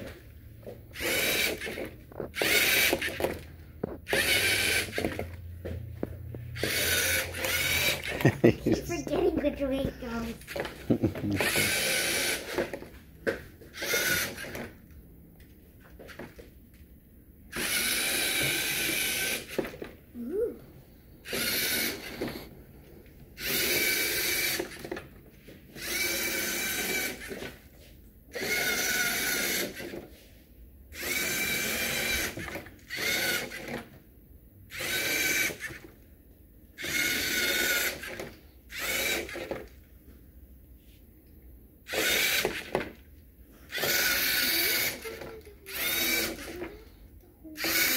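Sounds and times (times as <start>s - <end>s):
servo motors whirring: 0.9s - 3.4s, 4.0s - 5.4s, 6.6s - 8.5s, 10.2s - 12.8s, 13.7s - 14.8s, 17.5s - 19.8s, 21.2s - 22.5s, 23.4s - 25.0s, 25.8s - 27.6s, 28.3s - 30.0s, 30.9s - 33.8s, 34.7s - 35.8s, 36.8s - 39.7s, 41.9s - 43.0s, 43.7s - 46.9s, 47.5s - 47.9s.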